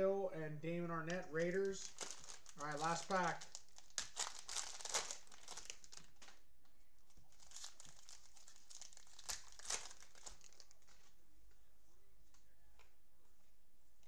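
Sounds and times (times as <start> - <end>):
plastic wrapper crinkling: 1.3 - 6.4, 7.0 - 11.2.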